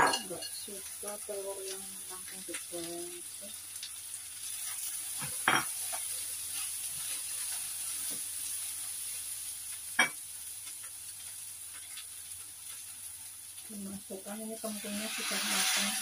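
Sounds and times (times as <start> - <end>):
spatula stirring in pan: 0.0 - 9.2, 14.6 - 16.0
food sizzling in oil: 0.0 - 16.0.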